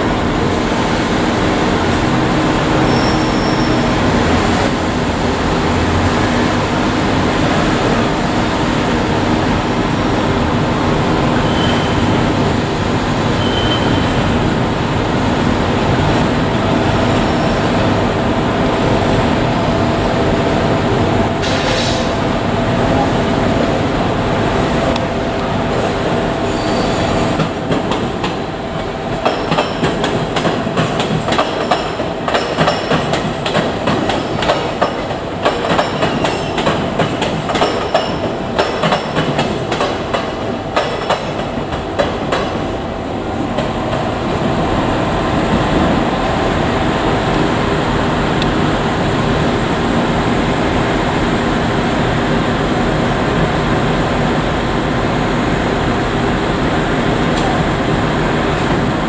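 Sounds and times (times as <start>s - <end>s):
train wheels clattering over rail joints: 27.4s - 42.6s.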